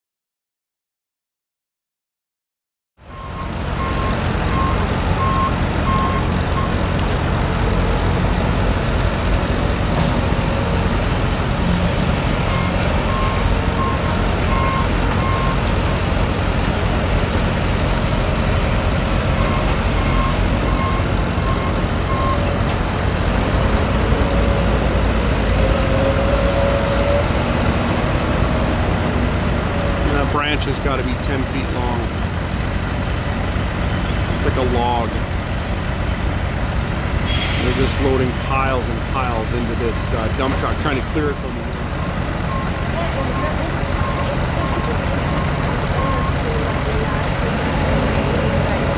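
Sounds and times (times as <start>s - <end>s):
diesel engines running: 3.0s - 48.9s
reversing alarm beeping: 3.1s - 6.8s, 12.4s - 15.7s, 19.4s - 22.6s, 42.5s - 47.0s.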